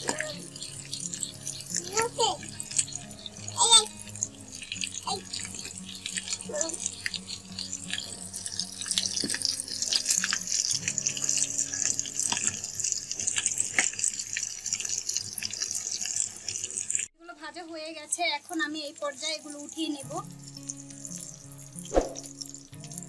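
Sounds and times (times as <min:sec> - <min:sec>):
food sizzling in hot oil: 0:00.0 - 0:17.1, 0:18.0 - 0:23.0.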